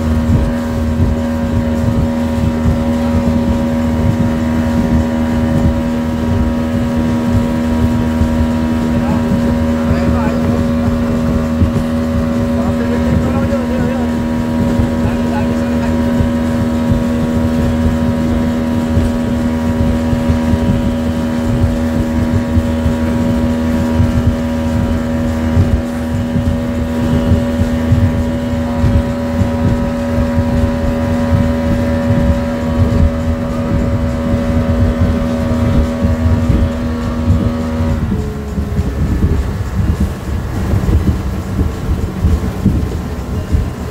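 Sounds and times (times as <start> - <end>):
outboard motor running: 0.0 - 43.9
rush of water: 0.0 - 43.9.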